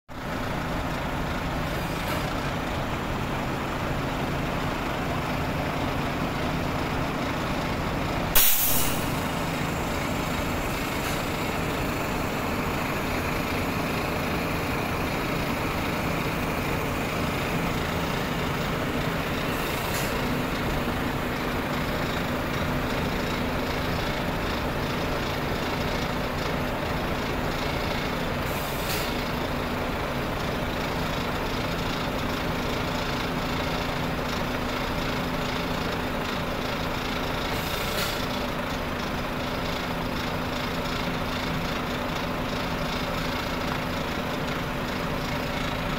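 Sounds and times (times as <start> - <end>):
truck diesel engines running: 0.1 - 45.9
air brake hiss: 8.3 - 9.6, 19.5 - 20.3, 28.5 - 29.2, 37.5 - 38.3.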